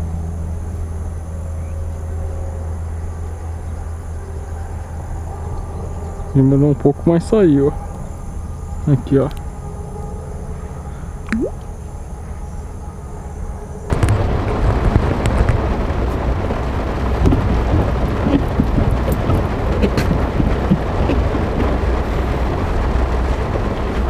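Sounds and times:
low outdoor hum: 0:00.0 - 0:24.0
heavy rain on car roof: 0:13.9 - 0:24.0.

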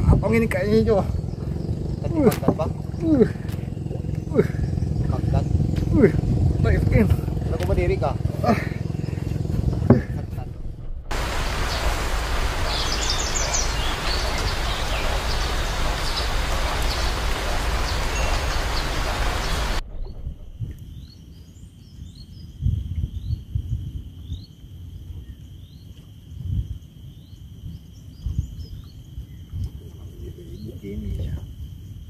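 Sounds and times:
choppy water: 0:00.0 - 0:21.1
wind buffeting microphone: 0:00.0 - 0:25.4, 0:26.3 - 0:32.0
steady high whine: 0:00.8 - 0:21.1.

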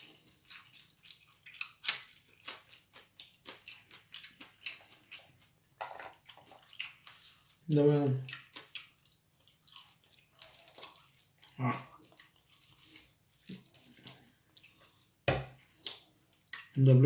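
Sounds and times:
chewing and lip smacks: 0:00.0 - 0:16.8
fingers squelching food: 0:00.0 - 0:16.8.

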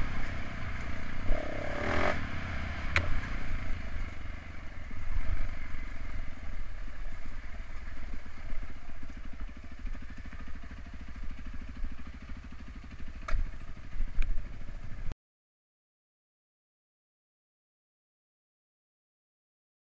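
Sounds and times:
dirt bike engine at low revs: 0:00.0 - 0:15.2.

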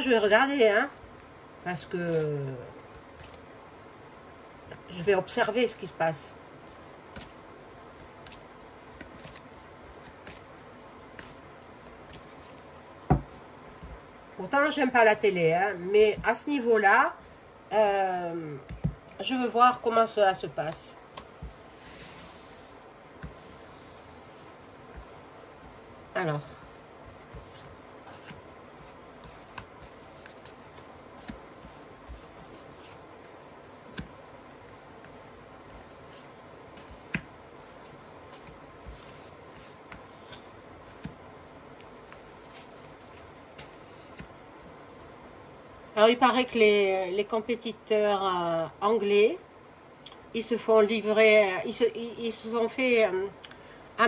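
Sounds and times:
cards shuffling and clicking: 0:06.7 - 0:14.0, 0:27.1 - 0:44.4
cards tapping on table: 0:13.0 - 0:13.4.

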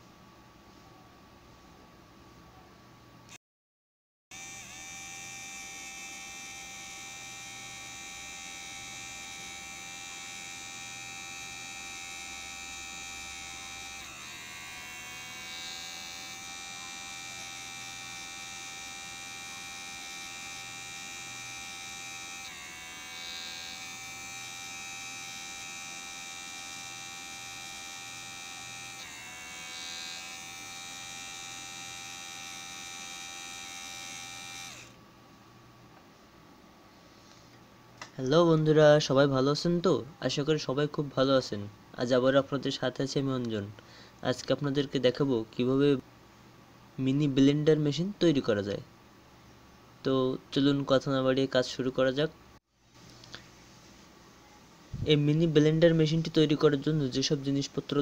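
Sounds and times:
mini blender motor whining: 0:04.3 - 0:35.0.

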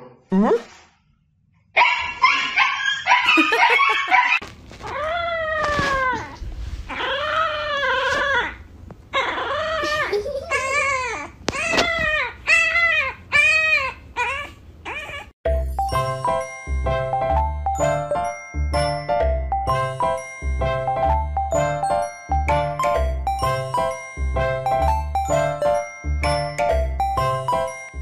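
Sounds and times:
puppy howling: 0:02.4 - 0:15.3.

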